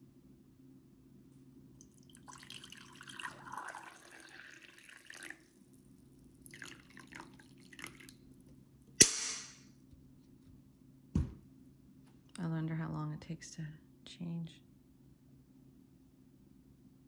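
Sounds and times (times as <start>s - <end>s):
water pouring into a mug: 1.8s - 8.5s
water dripping: 1.8s - 9.0s
sharp knock: 9.0s - 9.6s.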